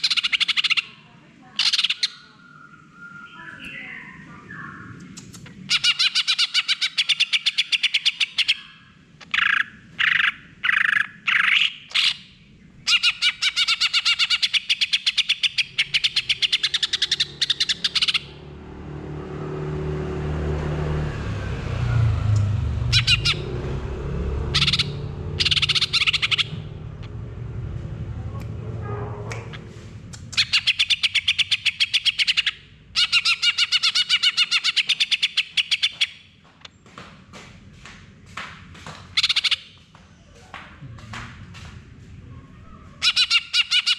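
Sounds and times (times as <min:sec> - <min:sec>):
bird chattering trills: 0:01.6 - 0:12.2, 0:12.8 - 0:18.4, 0:22.9 - 0:23.5, 0:24.5 - 0:26.8, 0:30.3 - 0:36.2, 0:42.9 - 0:43.9
low rumble: 0:12.3 - 0:13.3, 0:18.3 - 0:31.2.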